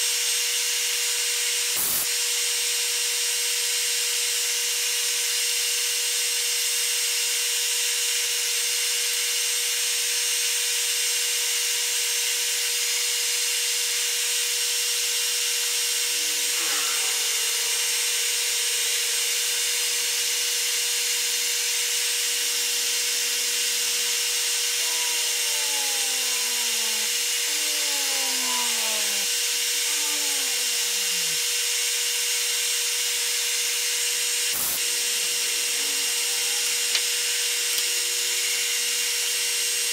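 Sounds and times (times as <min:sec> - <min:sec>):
metal lathe running: 0:15.2 - 0:39.4
drill squealing in metal: 0:15.5 - 0:20.9, 0:22.1 - 0:31.6, 0:34.6 - 0:39.0.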